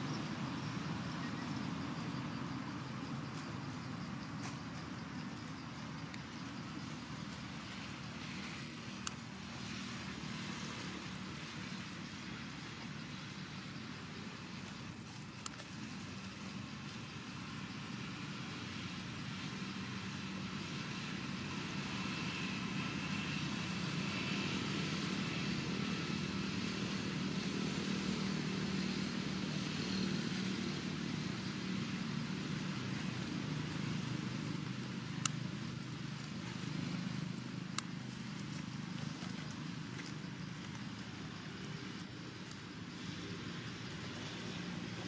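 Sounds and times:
low engine hum: 0.0s - 45.0s.

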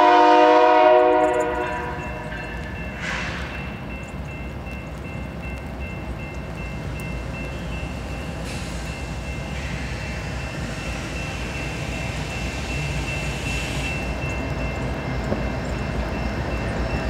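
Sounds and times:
diesel locomotive engine rumble: 0.0s - 17.0s
rushing hiss of rolling train: 2.6s - 3.9s, 6.8s - 17.0s.

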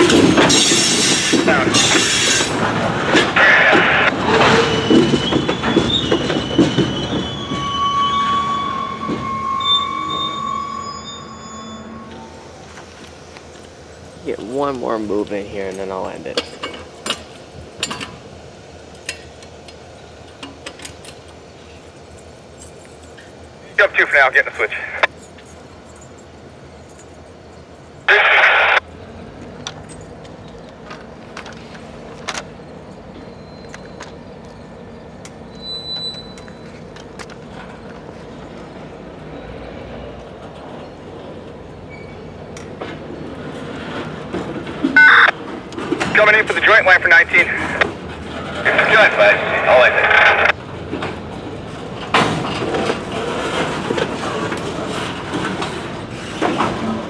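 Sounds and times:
train cars clicking and clanking: 0.0s - 57.0s
train wheels rumbling on track: 0.0s - 57.0s.

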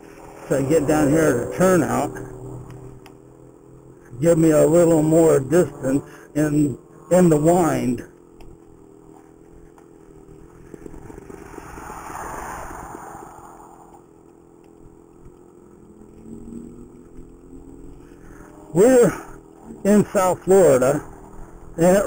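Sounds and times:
rushing noise: 0.0s - 3.0s, 11.3s - 13.9s.

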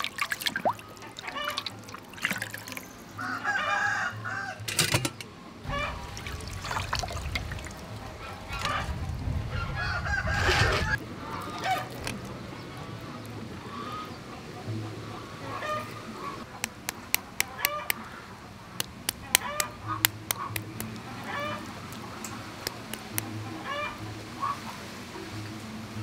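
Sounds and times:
water splashing in metal basin: 0.0s - 2.9s, 5.7s - 8.8s, 21.9s - 23.4s
running water stream: 0.0s - 3.4s, 5.7s - 26.0s
fowl calling: 0.7s - 1.7s, 5.6s - 6.2s, 15.1s - 18.4s, 19.0s - 24.8s.

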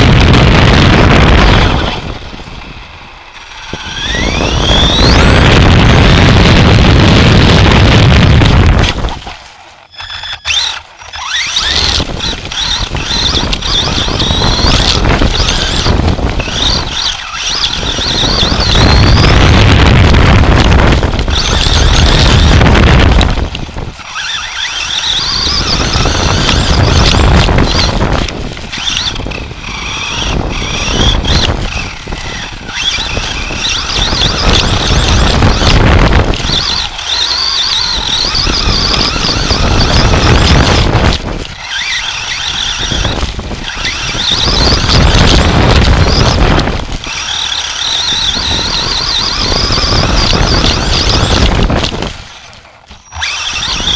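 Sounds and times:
rumbling chassis and tyres: 0.0s - 53.9s
toy truck motor whining: 0.0s - 53.9s.

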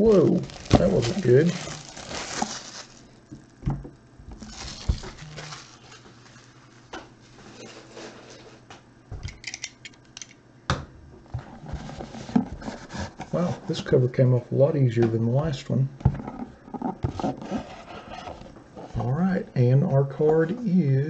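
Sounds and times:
plastic shrink-wrap crinkling: 0.0s - 3.6s, 4.3s - 6.9s
small crackles: 0.0s - 6.9s.

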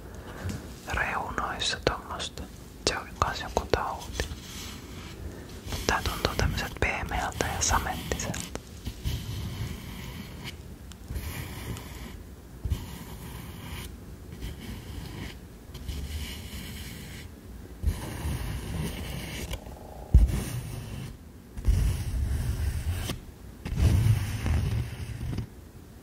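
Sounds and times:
low handling thumps on microphone: 19.6s - 20.5s.

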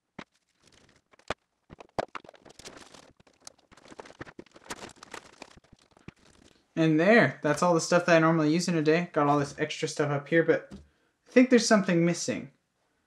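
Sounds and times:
nylon backpack rustling: 2.2s - 6.7s.

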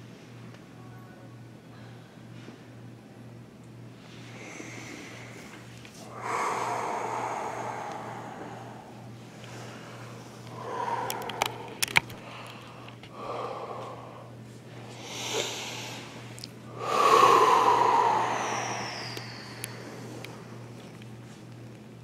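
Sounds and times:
person exhaling hard: 4.2s - 14.3s, 15.0s - 20.5s.

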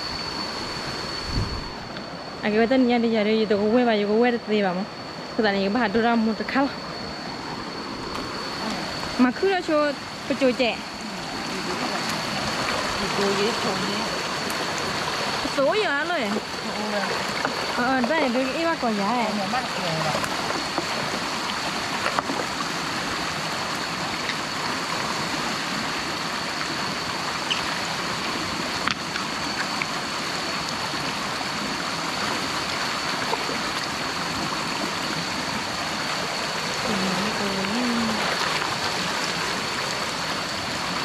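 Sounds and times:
thin high tone: 0.0s - 14.4s
stream water flowing: 0.0s - 41.0s.

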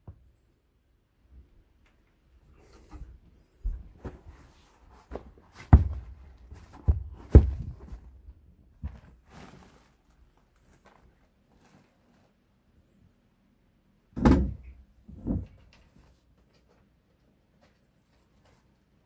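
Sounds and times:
dull thumps on wooden floor: 5.1s - 8.2s.

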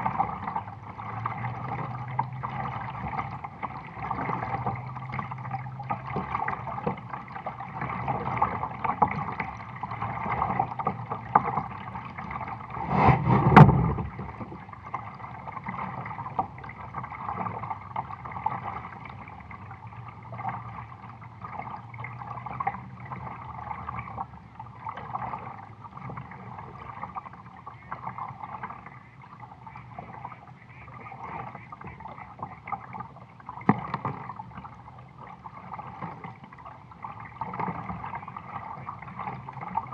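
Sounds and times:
water lapping against kayak hull: 0.0s - 39.9s
thump on kayak: 12.7s - 14.4s.

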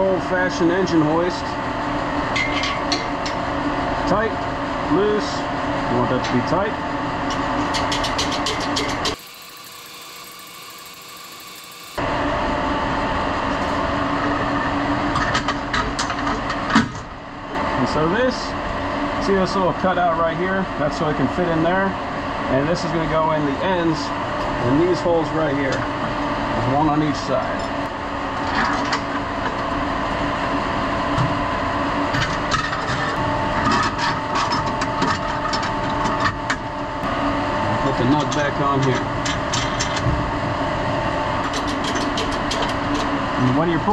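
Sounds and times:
industrial machinery hum: 0.0s - 43.9s.

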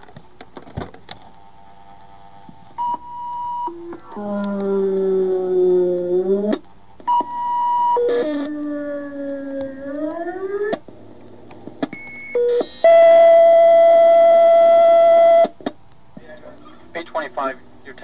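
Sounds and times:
loud steady alert tone: 2.8s - 6.4s
wavering siren howls: 3.6s - 6.6s, 8.0s - 10.8s.

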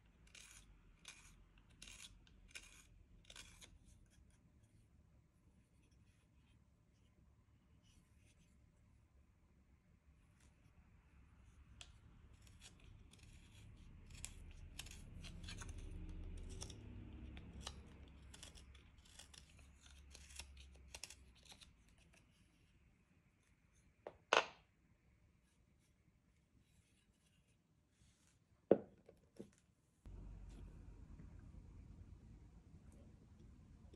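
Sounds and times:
carving tool cutting wood: 0.0s - 4.3s, 11.8s - 22.2s.

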